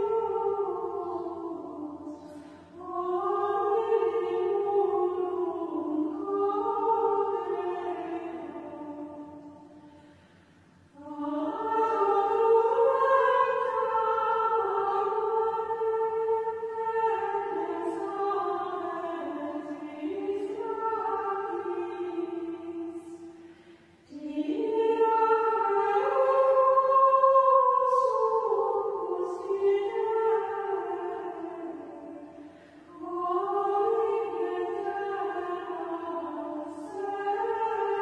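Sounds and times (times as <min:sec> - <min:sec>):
choir singing chant in unison: 0:00.0 - 0:09.7, 0:11.0 - 0:23.4, 0:24.1 - 0:38.0.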